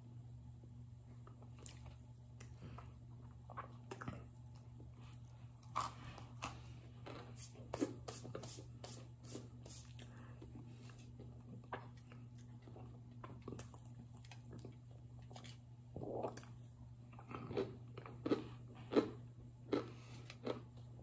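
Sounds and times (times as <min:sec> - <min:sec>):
cornstarch brick being chewed: 0:09.7 - 0:21.0.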